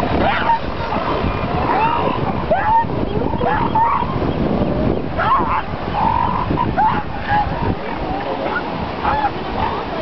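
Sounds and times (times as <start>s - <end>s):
surf rushing: 0.0s - 10.0s
elephant seals calling: 0.1s - 4.2s, 5.2s - 10.0s.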